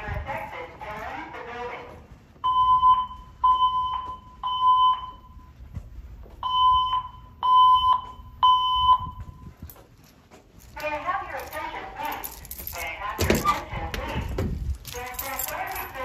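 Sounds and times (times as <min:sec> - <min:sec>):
fire alarm evacuation beeps: 0:02.3 - 0:05.7, 0:06.4 - 0:09.7.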